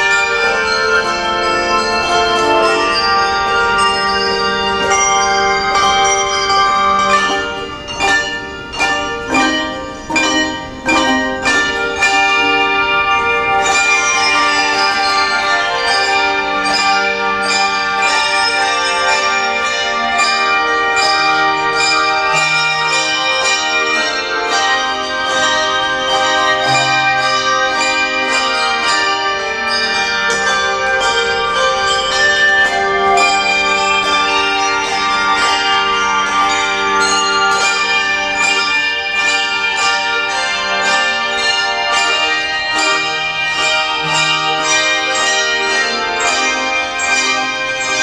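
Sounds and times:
handbell choir ringing chords: 0:00.0 - 0:48.0.

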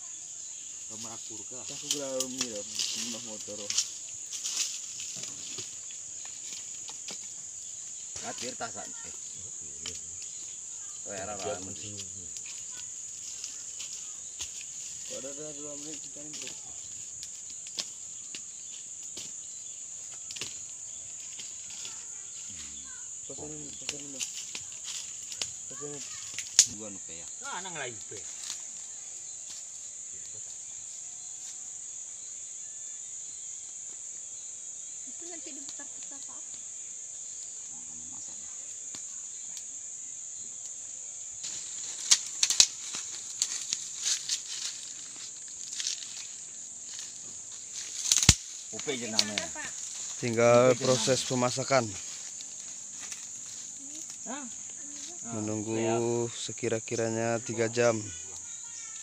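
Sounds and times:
high-pitched insect drone: 0:00.0 - 0:59.0
sharp snaps and rustles: 0:01.0 - 0:30.5, 0:38.7 - 0:39.7, 0:41.4 - 0:55.2
wood fire cracking: 0:19.9 - 0:22.1, 0:23.7 - 0:26.8, 0:41.5 - 0:50.4.

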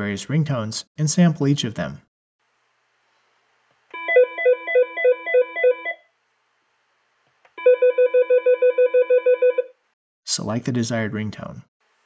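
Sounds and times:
fast pulsing phone ring: 0:04.0 - 0:06.0, 0:07.6 - 0:09.7
warbling electronic phone ring: 0:04.0 - 0:06.1, 0:07.6 - 0:09.7.

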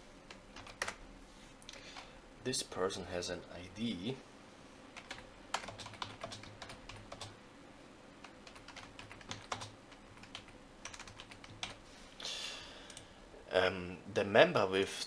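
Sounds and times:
computer keyboard typing: 0:00.3 - 0:01.0, 0:05.0 - 0:07.4, 0:08.2 - 0:11.8.

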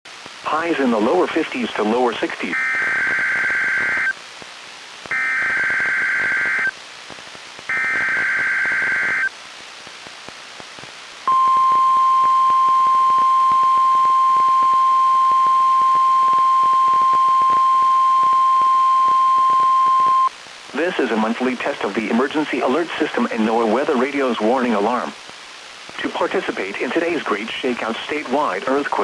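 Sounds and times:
radio hiss: 0:00.1 - 0:29.0
screechy digital data bursts: 0:02.6 - 0:04.1, 0:05.1 - 0:06.7, 0:07.7 - 0:09.3
steady warning alarm tone: 0:02.6 - 0:04.1, 0:05.1 - 0:06.7, 0:07.7 - 0:09.3, 0:11.3 - 0:20.3.

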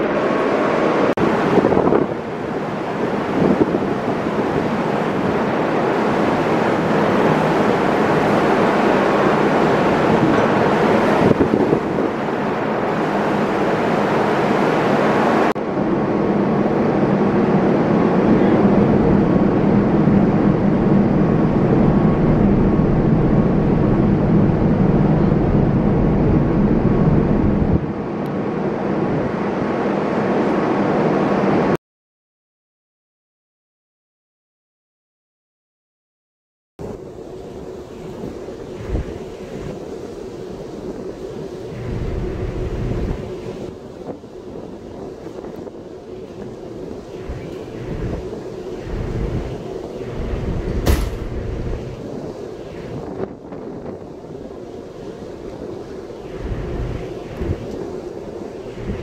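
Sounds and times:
rushing water: 0:00.0 - 0:15.6
rushing wind: 0:00.0 - 0:31.8, 0:36.8 - 0:59.0
ship engine drone: 0:00.0 - 0:31.8, 0:36.8 - 0:59.0.

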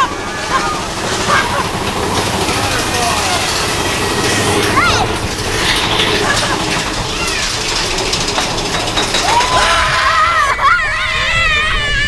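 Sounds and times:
riders yelling: 0:00.0 - 0:07.8, 0:09.0 - 0:12.0
roller coaster cars rumbling: 0:00.0 - 0:12.0
long scream: 0:09.3 - 0:12.0.

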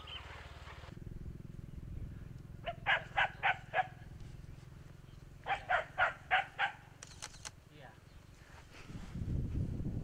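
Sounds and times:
steady low rumble: 0:00.9 - 0:05.5.

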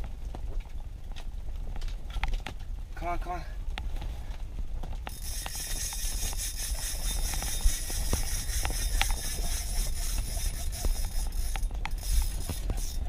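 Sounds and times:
low rumble and hiss: 0:00.0 - 0:13.0
fishing reel clicking: 0:05.1 - 0:13.0.

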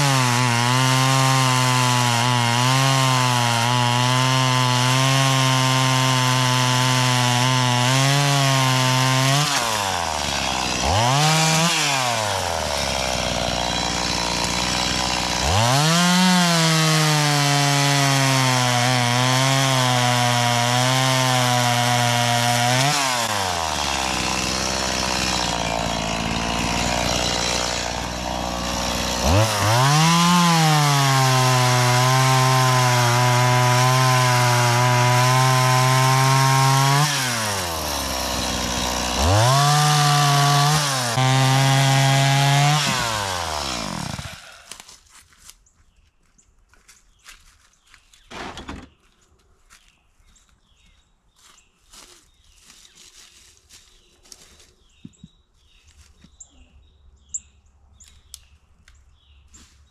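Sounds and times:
chainsaw engine winding down: 0:00.0 - 0:44.7
chainsaw cutting wood: 0:00.0 - 0:45.2.

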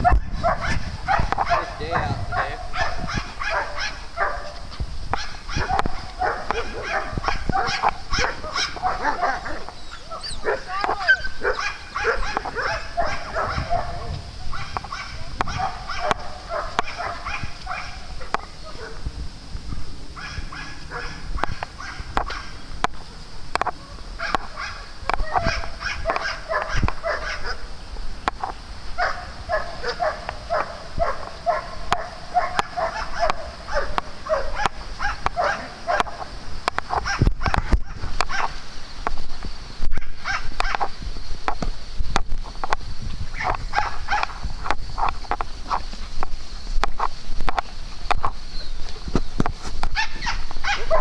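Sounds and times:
dogs barking and yipping: 0:00.0 - 0:19.0, 0:20.1 - 0:23.0, 0:23.6 - 0:27.7, 0:28.4 - 0:38.7, 0:39.9 - 0:41.0, 0:43.3 - 0:49.2, 0:49.8 - 0:51.0
dog yipping in play: 0:05.2 - 0:18.0, 0:50.0 - 0:51.0.

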